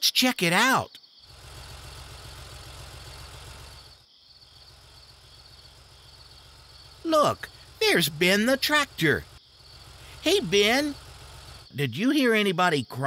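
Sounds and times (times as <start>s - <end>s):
crickets chirping: 0.0s - 13.0s
cartoon car engine rumbling: 1.2s - 12.2s.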